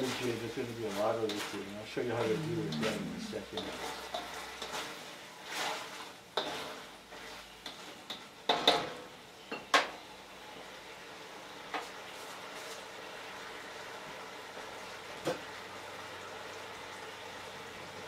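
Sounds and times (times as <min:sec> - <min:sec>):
metal spatula scraping wok: 0:04.6 - 0:07.8.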